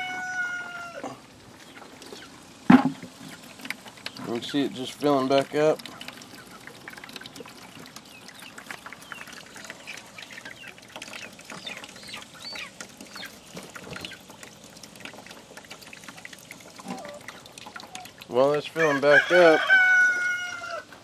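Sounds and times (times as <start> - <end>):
water running into bucket: 0.0 - 21.0
chickens clucking: 5.8 - 14.4.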